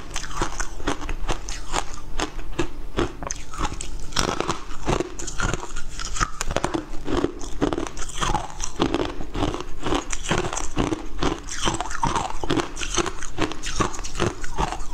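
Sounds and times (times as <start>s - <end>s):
frozen ice being crunched: 3.6s - 10.2s.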